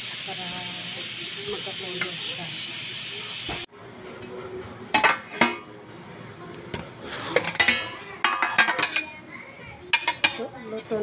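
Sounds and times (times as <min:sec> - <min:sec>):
nuts sizzling in oil: 0:00.0 - 0:03.7.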